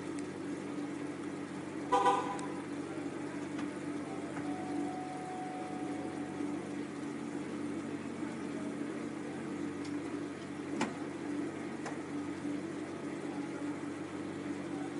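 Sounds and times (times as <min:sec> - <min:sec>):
low hum: 0:00.0 - 0:14.9.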